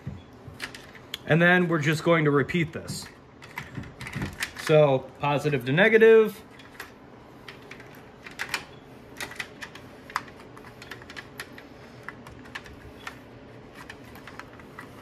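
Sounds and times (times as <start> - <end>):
battery leads clicking and rattling: 2.8 - 4.9.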